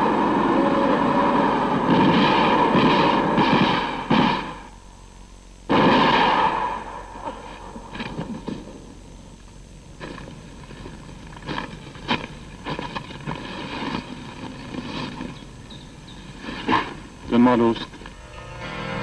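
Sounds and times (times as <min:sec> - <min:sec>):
faint low hum: 0:00.0 - 0:19.0
footsteps in dry undergrowth: 0:10.0 - 0:16.7.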